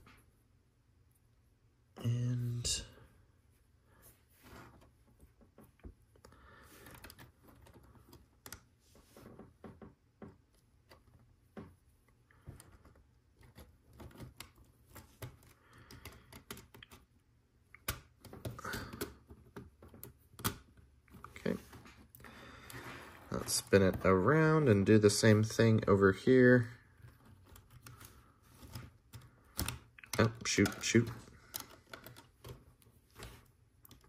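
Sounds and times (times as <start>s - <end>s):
plastic pieces clicking and rattling: 27.1s - 34.0s.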